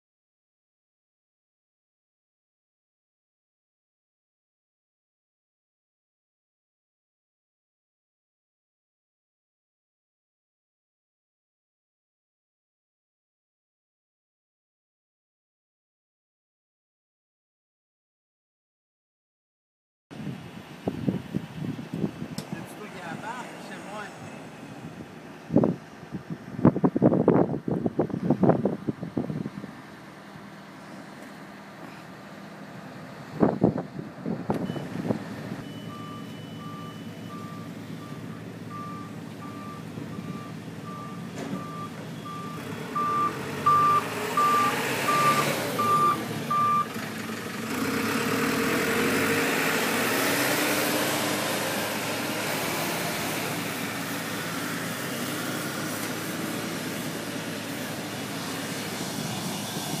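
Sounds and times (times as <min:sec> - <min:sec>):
reversing beeper: 0:35.6 - 0:46.9.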